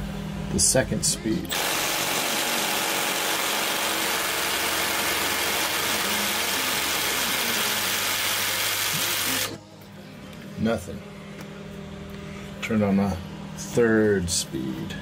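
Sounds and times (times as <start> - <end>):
impact wrench hammering: 1.5 - 9.6.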